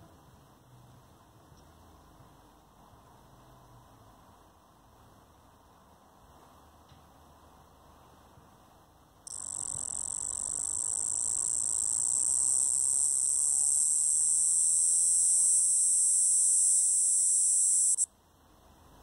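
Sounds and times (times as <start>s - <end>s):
cicada buzzing: 9.3s - 18.1s.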